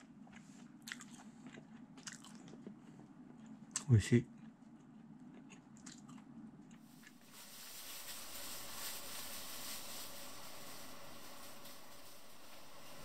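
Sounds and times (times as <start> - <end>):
eating clicks and crunches: 0.2 - 7.2
soft hiss: 6.9 - 13.0.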